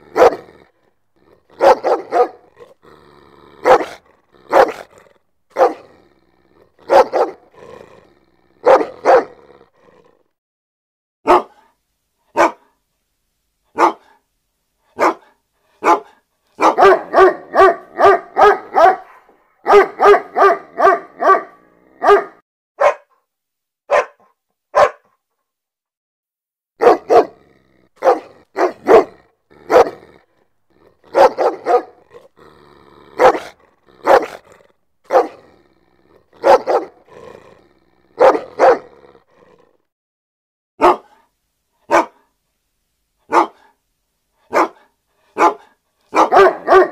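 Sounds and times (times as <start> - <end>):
dog barking: 0.0 - 0.6, 1.5 - 2.6, 3.6 - 5.9, 6.8 - 7.5, 8.6 - 9.4, 11.2 - 12.8, 13.7 - 14.2, 14.9 - 23.2, 23.9 - 25.2, 26.8 - 27.4, 28.0 - 30.2, 31.0 - 32.3, 33.1 - 34.5, 35.1 - 35.5, 36.2 - 37.1, 38.2 - 39.0, 40.8 - 42.3, 43.3 - 43.8, 44.4 - 46.9.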